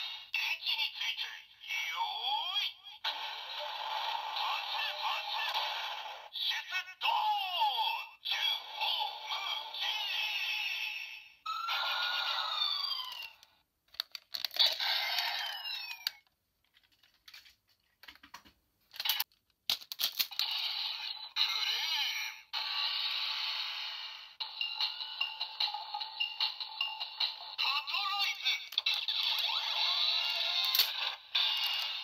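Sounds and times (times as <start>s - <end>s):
synthesised voice: 0.3s - 3.0s, 4.3s - 11.3s, 21.0s - 22.5s, 27.5s - 31.0s
toy electronic sound effects: 1.7s - 6.6s, 8.3s - 10.8s, 11.5s - 13.5s, 14.5s - 16.2s, 20.3s - 32.0s
plastic parts snapping together: 13.9s - 14.6s, 16.7s - 20.3s.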